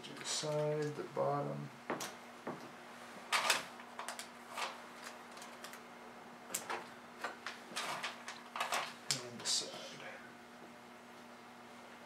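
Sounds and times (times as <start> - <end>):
faint steady hum: 0.0 - 12.0
tape clicks and crinkles on plastic: 3.3 - 5.8, 6.5 - 9.5.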